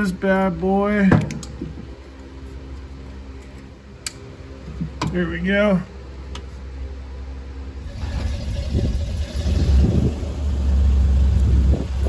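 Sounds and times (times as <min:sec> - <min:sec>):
pickup truck engine driving: 0:07.8 - 0:12.0.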